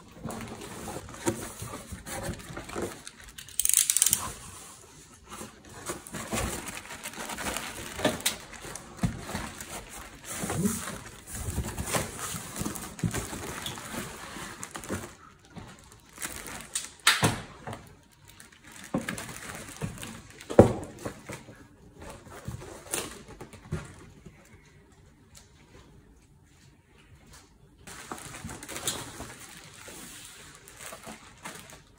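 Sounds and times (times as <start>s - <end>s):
plastic crinkling: 0.0s - 17.1s, 17.8s - 21.1s, 27.8s - 31.9s.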